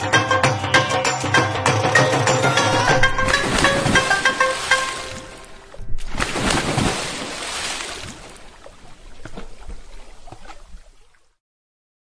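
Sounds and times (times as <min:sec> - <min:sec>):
wet liquid splashing: 0:02.9 - 0:11.4
drips and spatters: 0:03.0 - 0:11.4.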